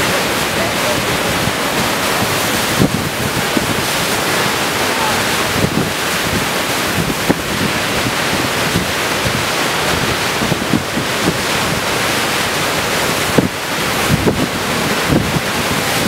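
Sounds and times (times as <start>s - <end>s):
rush of wind: 0.0s - 16.0s
waves breaking over rock: 0.0s - 16.0s
wind buffeting microphone: 0.0s - 16.0s.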